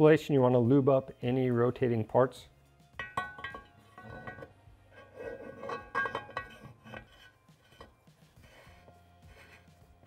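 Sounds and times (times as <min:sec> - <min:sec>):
metal clinking and scraping: 0:02.9 - 0:10.0
metal case ringing: 0:03.0 - 0:04.6, 0:05.2 - 0:07.1.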